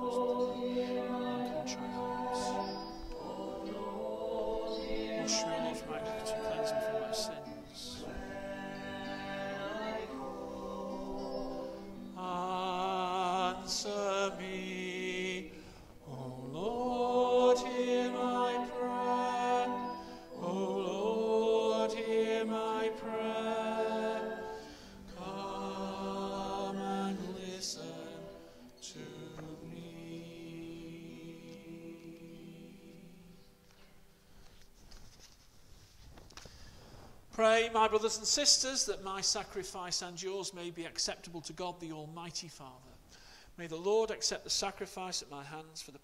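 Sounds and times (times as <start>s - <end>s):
person singing with vibrato: 0.0s - 33.4s
sustained accompaniment: 0.0s - 33.7s.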